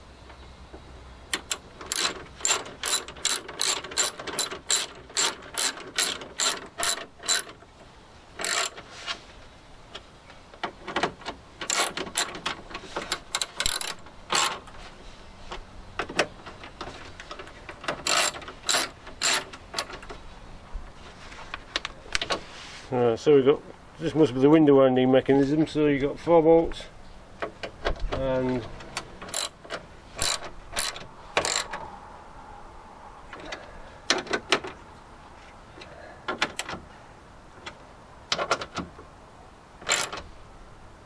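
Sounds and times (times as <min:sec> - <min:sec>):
socket ratchet clicking: 0:01.3 - 0:07.6, 0:08.4 - 0:08.8, 0:13.1 - 0:14.6, 0:18.0 - 0:19.9, 0:29.2 - 0:31.8, 0:39.8 - 0:40.2.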